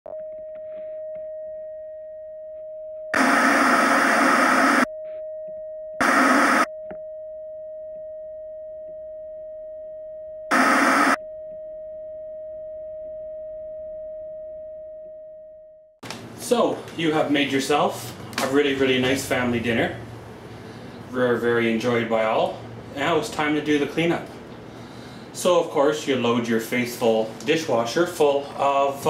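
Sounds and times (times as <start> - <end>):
steady test tone beep: 0.1 - 15.9
static hiss bursts: 3.2 - 4.9, 6.0 - 6.7, 10.5 - 11.2.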